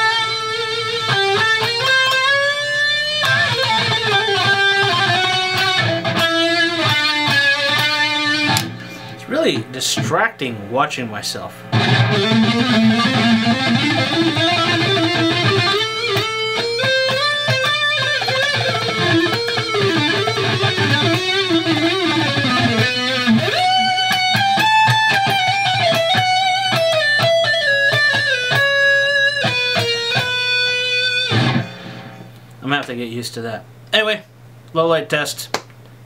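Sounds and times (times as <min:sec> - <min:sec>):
electric guitar playing: 0:00.0 - 0:32.4
low amp hum: 0:00.0 - 0:36.0.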